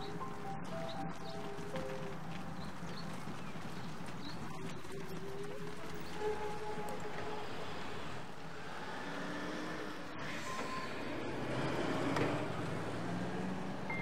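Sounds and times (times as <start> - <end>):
road traffic noise: 0.0 - 14.0
vehicle passing: 7.1 - 14.0.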